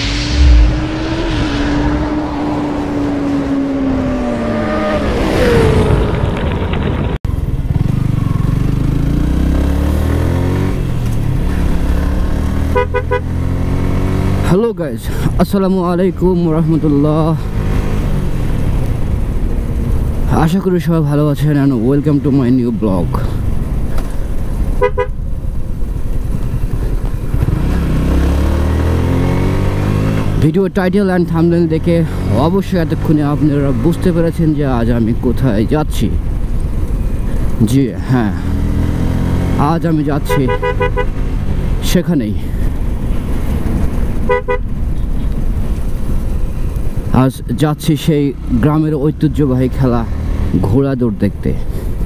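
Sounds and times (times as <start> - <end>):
whoosh: 0.0 - 6.4
motorcycle engine riding: 2.1 - 14.6, 15.8 - 52.0
motorcycle engine running: 6.8 - 9.9
double horn beep: 12.7 - 13.3, 40.3 - 41.2, 44.3 - 44.6.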